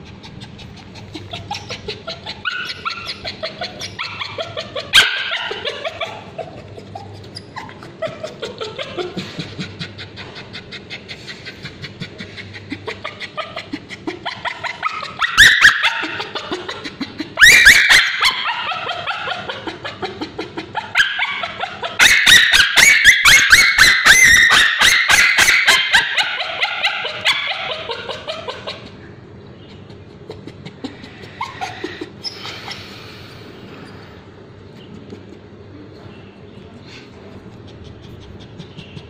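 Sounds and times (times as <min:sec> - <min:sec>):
dog screaming and yelping: 0:00.0 - 0:09.2, 0:10.0 - 0:29.0, 0:30.9 - 0:33.2
dog whimpering: 0:00.0 - 0:29.0, 0:29.7 - 0:33.2.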